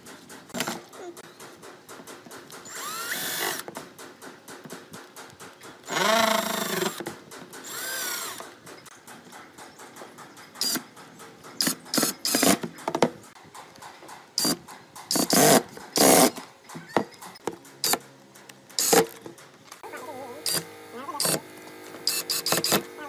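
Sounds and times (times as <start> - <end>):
cordless driver driving screws: 2.7 - 3.6, 18.8 - 19.2, 20.4 - 21.4, 22.0 - 22.9.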